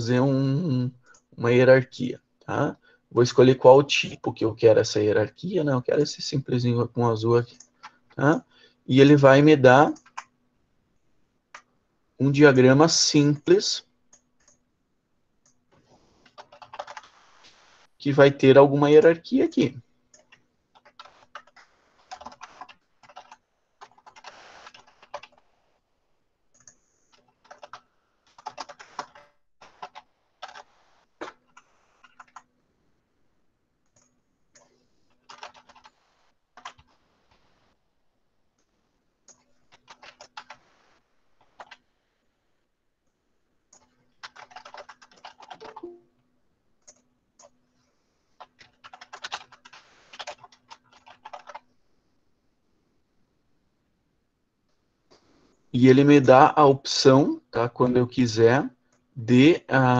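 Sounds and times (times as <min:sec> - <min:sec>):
computer keyboard typing: 0:09.8 - 0:10.3, 0:14.1 - 0:14.6, 0:16.2 - 0:17.4, 0:20.1 - 0:25.5, 0:26.5 - 0:32.5, 0:33.9 - 0:36.0, 0:36.6 - 0:37.0, 0:39.3 - 0:40.8, 0:41.4 - 0:41.8, 0:43.7 - 0:46.0, 0:46.8 - 0:47.6, 0:48.4 - 0:51.7.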